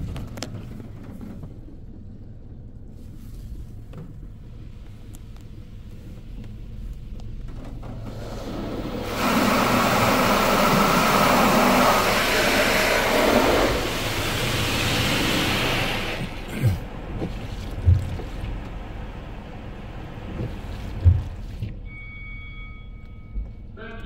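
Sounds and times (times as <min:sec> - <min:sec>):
low rumble: 0:00.0 - 0:24.0
water spray rushing on car roof: 0:07.9 - 0:21.7.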